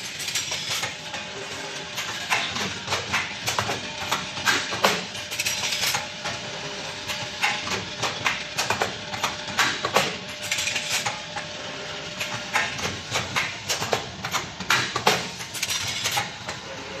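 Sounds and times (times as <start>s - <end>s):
faint machine hum: 0.0s - 17.0s.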